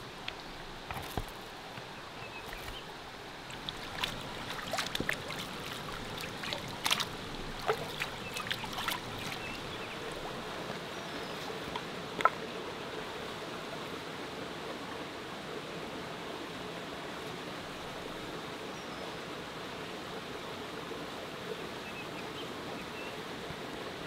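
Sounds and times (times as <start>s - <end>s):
river running: 0.0s - 24.0s.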